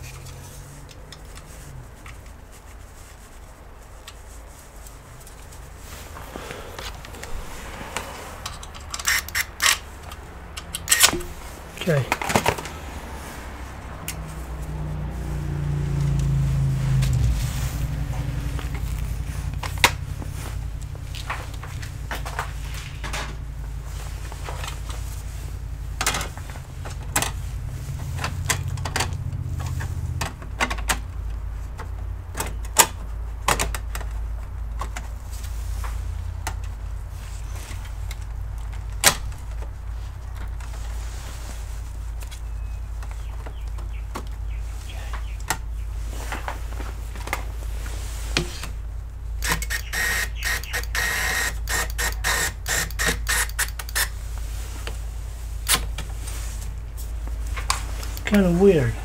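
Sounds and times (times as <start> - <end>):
low hum: 3.4 - 31.4
rattling clicks: 6.8 - 11.4
metal parts clicking and knocking: 8.4 - 11.3, 49.4 - 54.1.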